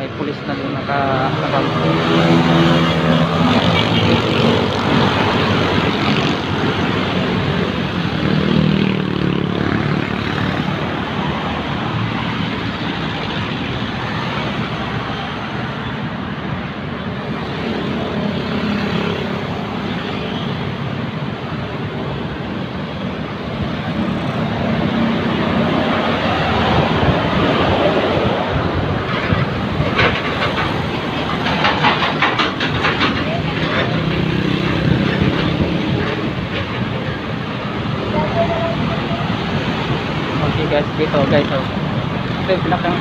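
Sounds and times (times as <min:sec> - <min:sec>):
cars and motorcycles driving past: 0:00.0 - 0:43.0.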